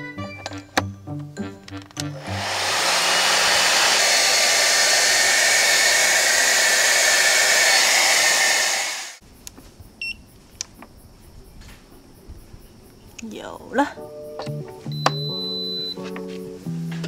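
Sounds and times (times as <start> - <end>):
hair dryer blowing: 2.1 - 9.2.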